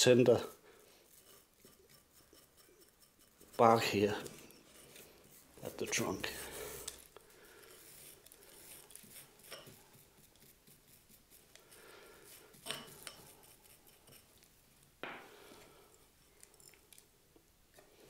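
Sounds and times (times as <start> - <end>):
brush scrubbing bark: 0.1 - 14.4.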